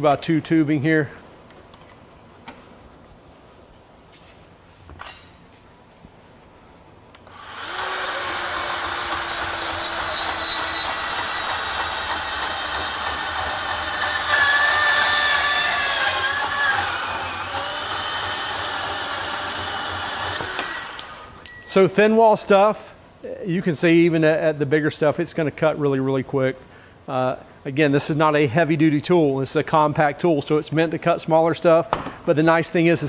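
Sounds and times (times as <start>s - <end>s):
band saw cutting metal: 7.3s - 21.4s
high whining saw blade: 7.3s - 21.8s.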